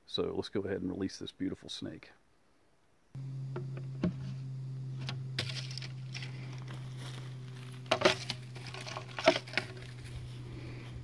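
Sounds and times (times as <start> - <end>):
steady low hum: 3.2 - 11.0.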